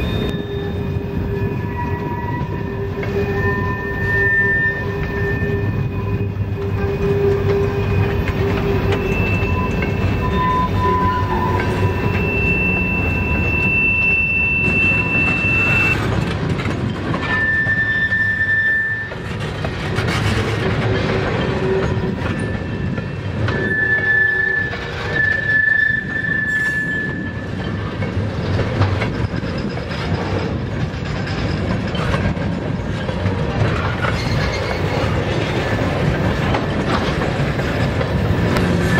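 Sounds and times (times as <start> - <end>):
high-pitched wheel squeal: 0.0 - 16.1, 17.2 - 19.4, 21.4 - 27.9, 33.7 - 35.4, 38.4 - 38.9
train wheels rumbling on rails: 0.0 - 38.9.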